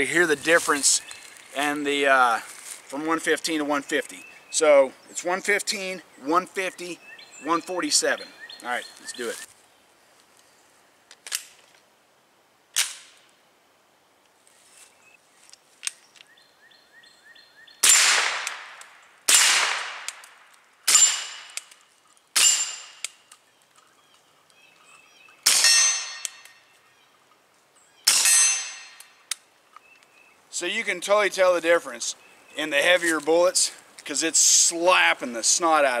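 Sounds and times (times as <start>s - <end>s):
suppressed gunshots: 17.8s - 20.2s
steel targets ringing: 25.6s - 26.4s, 28.1s - 29.0s.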